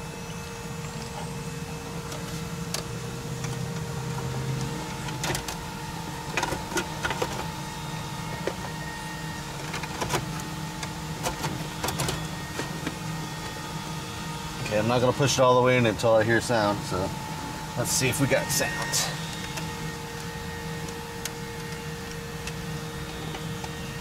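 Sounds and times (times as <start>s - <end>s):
steady low hum: 0.0s - 24.0s.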